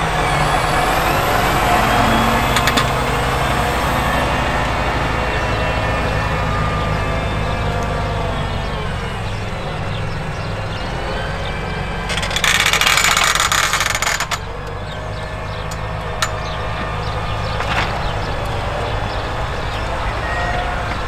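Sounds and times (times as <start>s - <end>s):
tractor diesel engine under load: 0.0s - 21.0s
sharp clicks: 12.1s - 14.8s.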